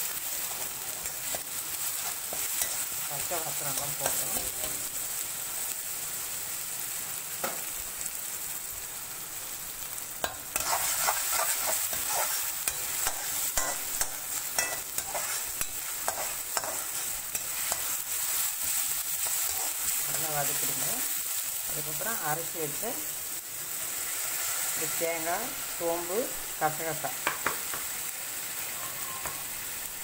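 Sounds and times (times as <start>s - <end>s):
paste sizzling in oil: 0.0s - 30.0s
spatula scraping a pan: 10.2s - 20.1s.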